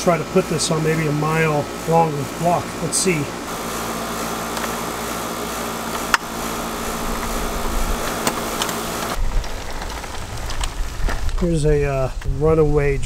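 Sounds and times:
air conditioner humming: 0:00.0 - 0:12.2
wheels rolling over concrete: 0:00.0 - 0:12.4.

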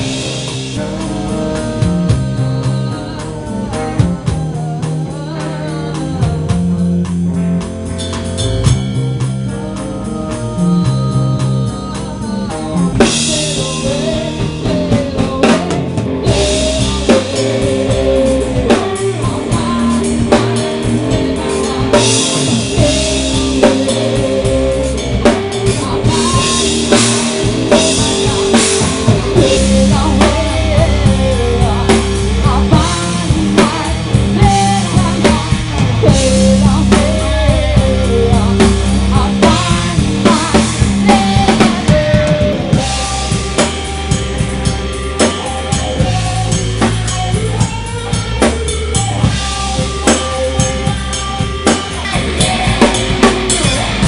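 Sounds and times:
woman singing: 0:00.0 - 0:07.7, 0:08.6 - 0:54.0
drums and cymbals: 0:00.0 - 0:54.0
electric guitar: 0:00.0 - 0:54.0.

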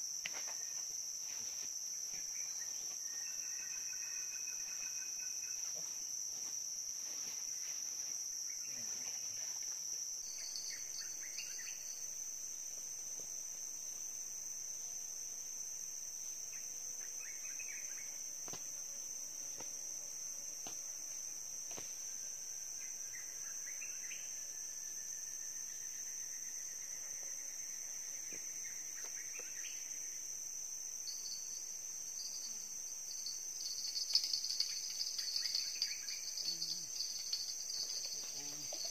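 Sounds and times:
insects droning: 0:00.0 - 0:38.9.

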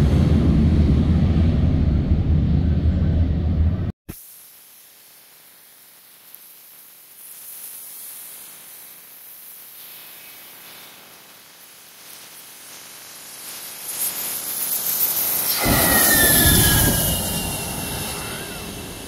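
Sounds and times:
jet engines hissing: 0:12.8 - 0:19.0.

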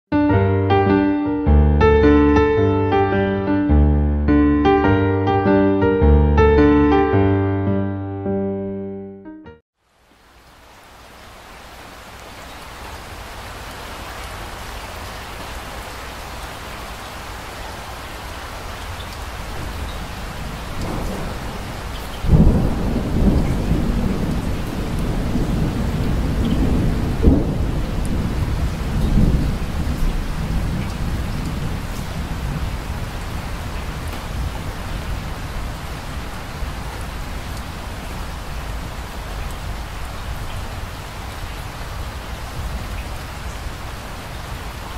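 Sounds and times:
steady rain: 0:09.8 - 0:44.9
thunder rolling: 0:19.7 - 0:36.8.

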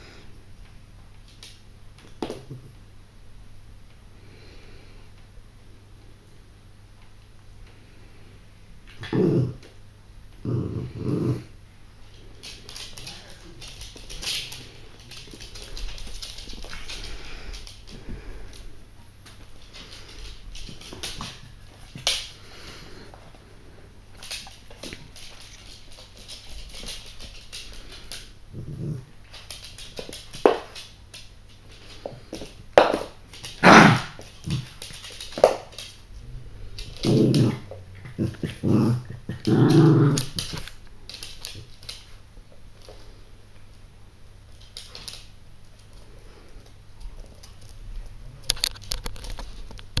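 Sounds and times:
dog growling: 0:08.9 - 0:09.7, 0:10.4 - 0:11.6, 0:28.5 - 0:29.2, 0:36.2 - 0:40.7
dogs scuffling: 0:12.0 - 0:43.3
claws clicking on wooden floor: 0:12.1 - 0:22.7, 0:24.1 - 0:36.0, 0:36.7 - 0:42.2.

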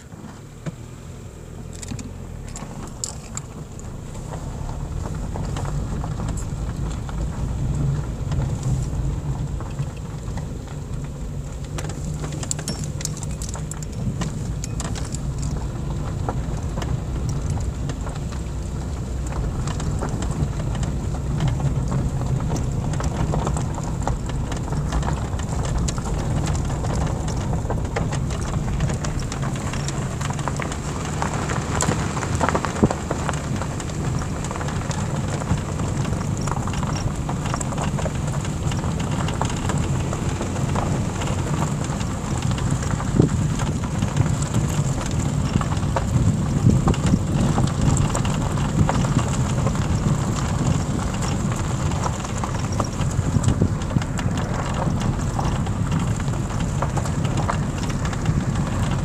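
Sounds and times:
car engine and road rumble: 0:00.0 - 0:59.0
gravel crackling under tyres: 0:00.0 - 0:59.0.

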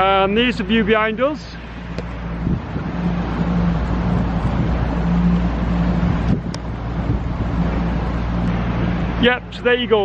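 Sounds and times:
boat motor humming: 0:00.0 - 0:10.0
wind on microphone: 0:01.7 - 0:09.2.

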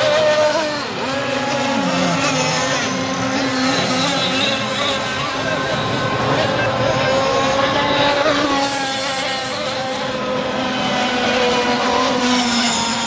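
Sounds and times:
rc boat engines buzzing: 0:00.0 - 0:13.0.

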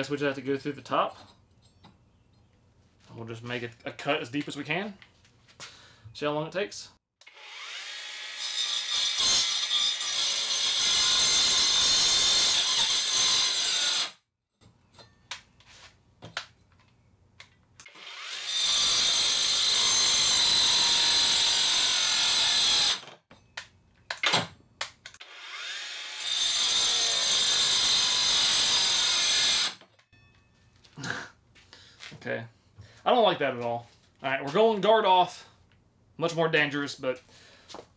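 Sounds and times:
angle grinder cutting wood: 0:07.2 - 0:14.2, 0:17.8 - 0:23.2, 0:25.2 - 0:29.8.

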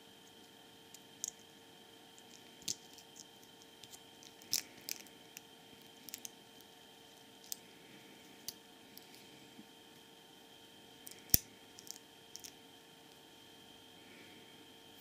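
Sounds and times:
faint hum: 0:00.0 - 0:15.0.

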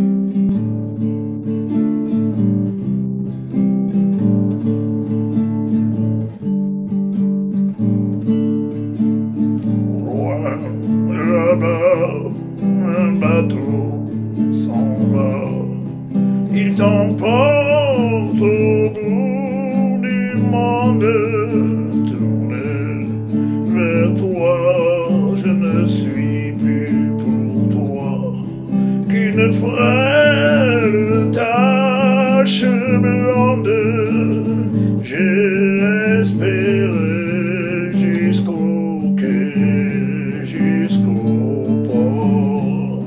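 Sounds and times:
strummed acoustic guitar: 0:00.0 - 0:43.0
man singing: 0:09.6 - 0:43.0.

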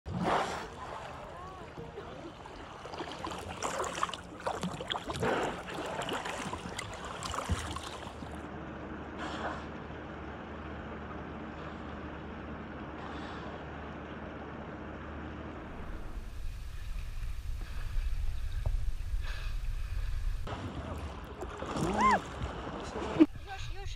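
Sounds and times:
lapping water: 0:00.1 - 0:08.4, 0:15.7 - 0:23.4
water splashing around kayak: 0:00.1 - 0:08.5, 0:15.7 - 0:23.9.

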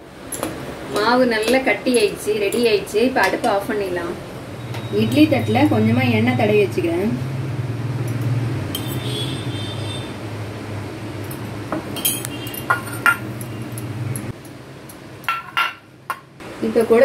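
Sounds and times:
spoon clinking on metal plate: 0:11.3 - 0:14.6, 0:15.2 - 0:16.3.

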